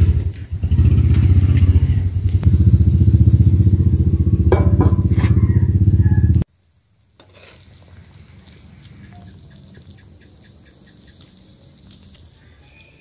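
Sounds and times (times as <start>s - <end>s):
small engine throbbing: 0.0s - 6.5s.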